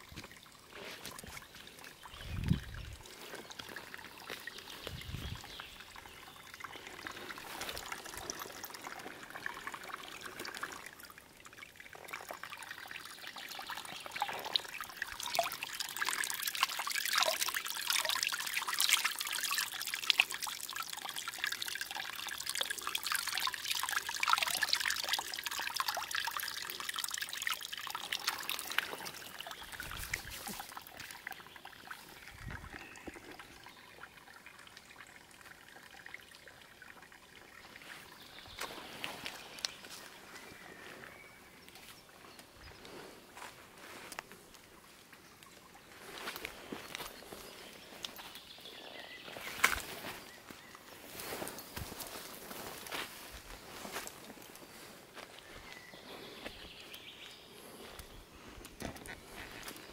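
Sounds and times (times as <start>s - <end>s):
stream babbling over stones: 0.0s - 40.6s, 56.6s - 59.9s.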